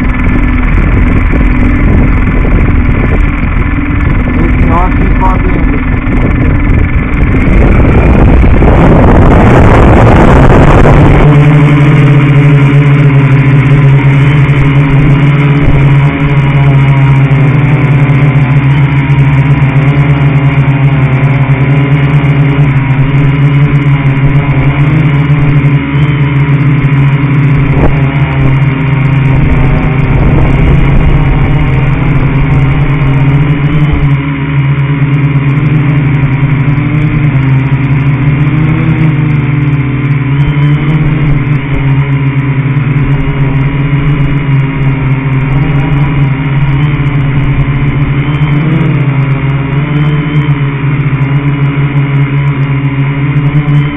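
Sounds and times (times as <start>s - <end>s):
electric motors humming: 0.0s - 53.9s
rush of noise: 0.0s - 53.9s.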